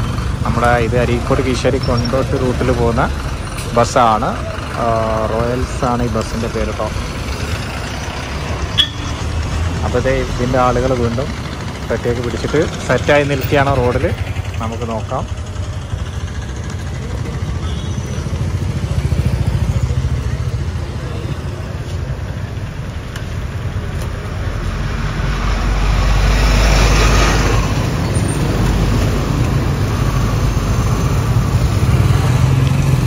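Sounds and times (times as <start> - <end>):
motorcycle engines idling and pulling away: 0.0 - 33.0
vehicle passing close: 18.2 - 33.0.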